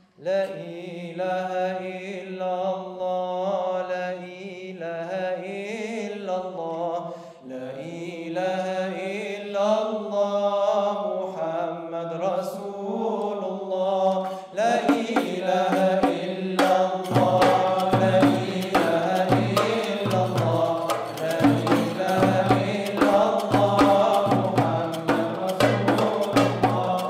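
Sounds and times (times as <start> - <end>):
male vocal ensemble singing: 0.2 - 27.0
frame drums: 14.8 - 27.0
steady low drum beat: 14.9 - 27.0.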